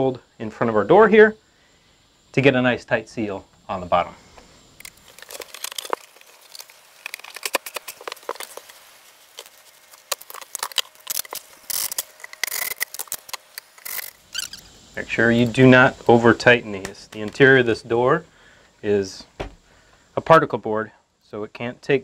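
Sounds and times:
hands handling screws and drill: 4.8 - 14.6.

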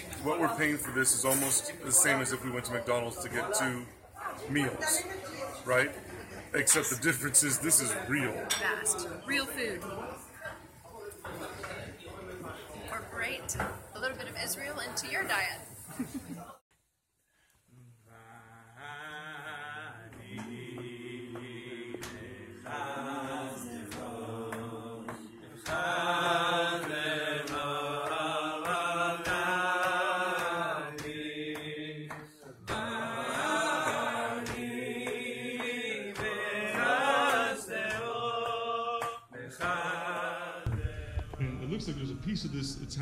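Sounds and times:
person chant-like singing: 17.7 - 20.8
steady low drone: 40.7 - 43.0.

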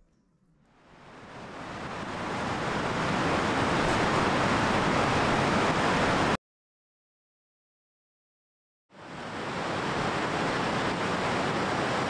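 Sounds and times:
creek water rushing: 1.0 - 6.4, 9.0 - 12.0.

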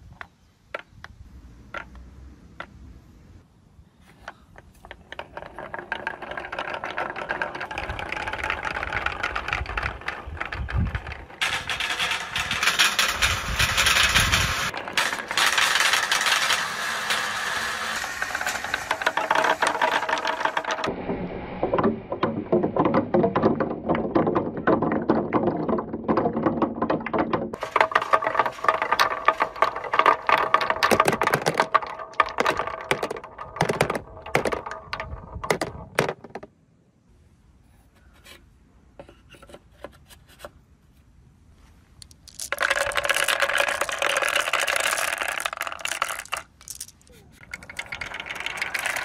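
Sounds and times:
balls rolling down wooden chute: 0.2 - 2.8, 4.1 - 36.6, 41.9 - 49.0
balls dropping into plastic bin: 4.8 - 20.9, 21.8 - 36.6, 42.0 - 49.0
marbles clattering down wooden ramps: 4.8 - 20.9, 21.7 - 36.5, 42.0 - 49.0.

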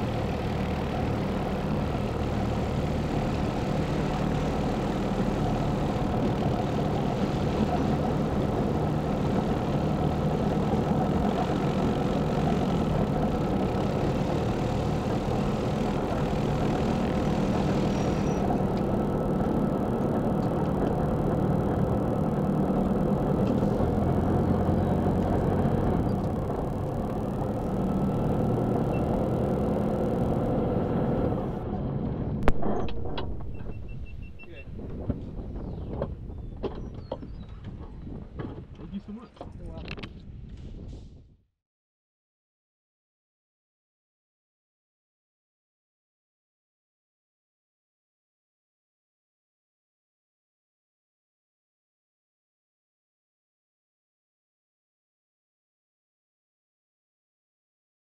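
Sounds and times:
aircraft engine and propeller: 0.0 - 41.1.

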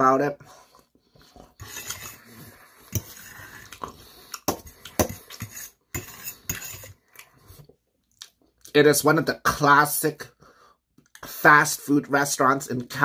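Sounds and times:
metal fork scraping steel bowl: 1.4 - 4.0, 4.6 - 7.3.

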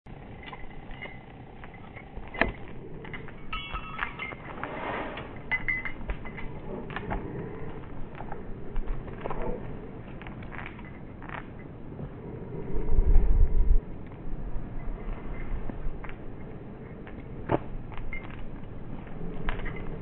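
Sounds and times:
scuffs on tarmac: 0.1 - 20.0
dog collar jingling: 0.2 - 4.6, 5.3 - 7.7, 9.8 - 11.7, 19.0 - 20.0.

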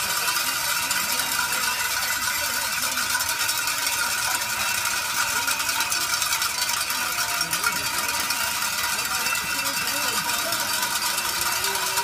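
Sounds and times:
handbells jangling: 0.0 - 12.0.

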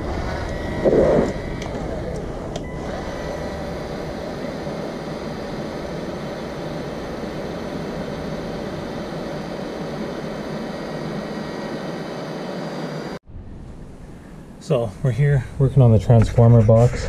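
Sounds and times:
cordless drill running: 0.0 - 12.0.

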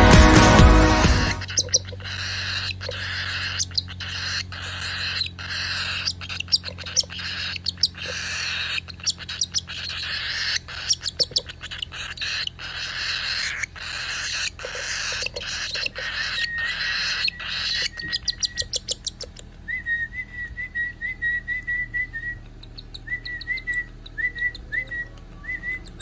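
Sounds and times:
bird chick begging call: 1.3 - 26.0.

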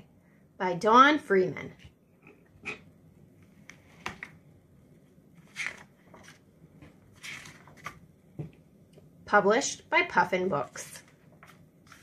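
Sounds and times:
book pages turning: 3.6 - 4.4, 5.3 - 8.1, 10.6 - 12.0.

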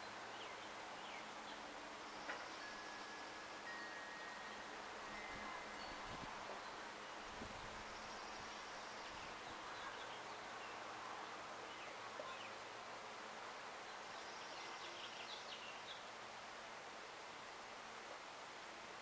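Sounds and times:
small birds chirping: 0.0 - 12.7, 13.9 - 16.1
steady hiss: 0.0 - 19.0.

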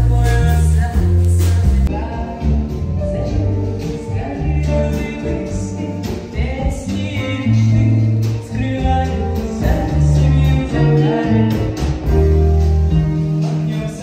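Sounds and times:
song with guitar and singing: 0.0 - 14.0.

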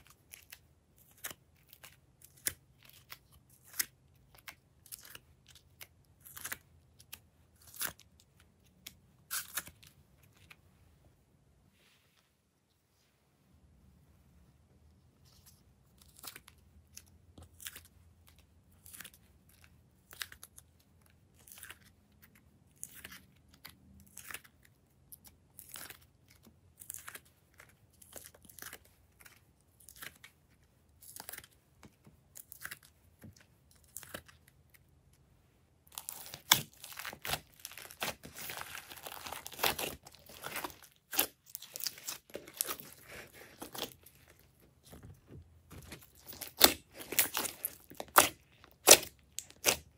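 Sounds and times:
slime squishing and popping: 35.9 - 44.3, 45.7 - 49.9.

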